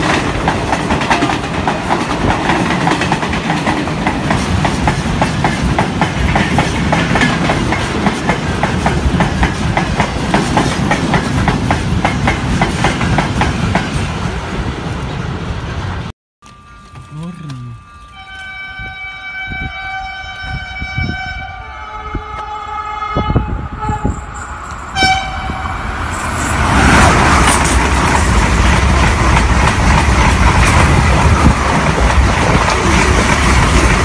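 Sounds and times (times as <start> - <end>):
train rushing past: 0.0 - 19.8, 20.4 - 34.0
train horn blast: 17.8 - 24.3, 24.9 - 26.0.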